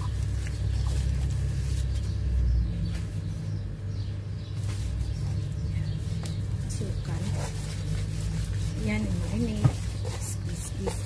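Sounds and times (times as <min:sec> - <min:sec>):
hands rubbing paste into chicken: 0:04.6 - 0:11.0.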